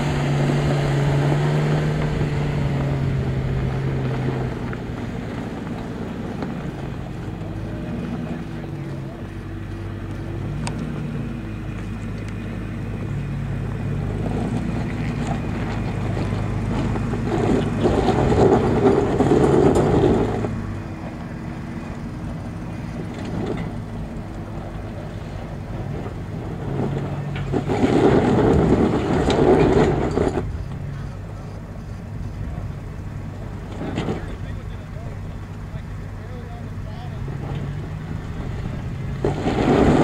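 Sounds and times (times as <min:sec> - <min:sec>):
engine pulling at low revs: 0:00.0 - 0:40.0
tyres scrabbling on loose rock: 0:14.0 - 0:31.2, 0:37.2 - 0:40.0.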